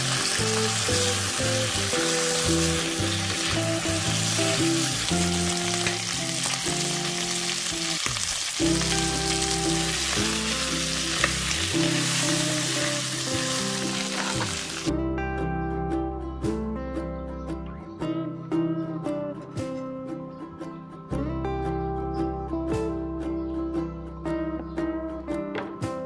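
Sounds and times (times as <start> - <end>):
livers sizzling in oil: 0.0 - 14.9.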